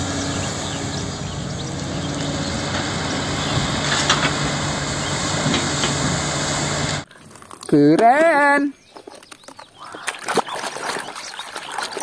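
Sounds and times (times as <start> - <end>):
excavator diesel engine running: 0.0 - 7.0
soil and stones pouring into truck: 1.8 - 7.7.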